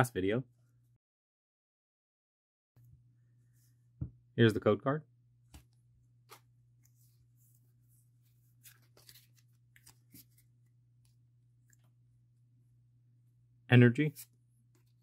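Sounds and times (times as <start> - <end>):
low steady hum: 2.8 - 15.0
trading cards flipped by hand: 5.5 - 7.1, 8.4 - 11.1.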